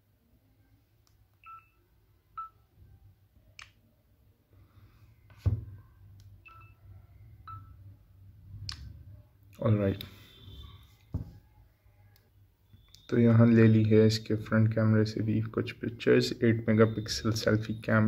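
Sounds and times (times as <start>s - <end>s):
handling thump: 5.4s - 5.8s.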